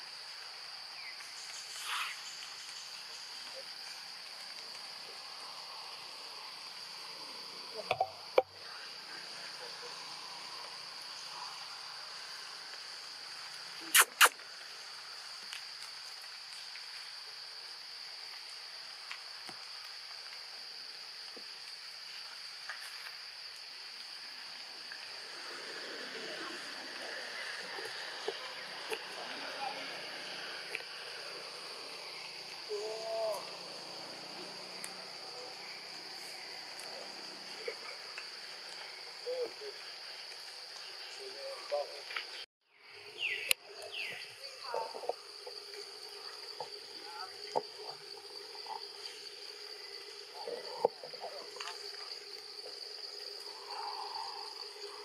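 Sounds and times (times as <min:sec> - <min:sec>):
insects droning in trees: 0:00.0 - 0:55.0
short sharp loud sounds: 0:13.9 - 0:14.4.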